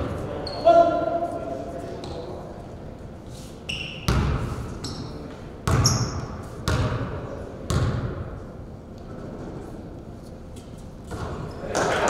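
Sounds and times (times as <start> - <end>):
sneakers squeaking on court: 0.4 - 0.8, 3.6 - 6.9
basketball bouncing on gym floor: 4.0 - 7.1, 7.7 - 8.3.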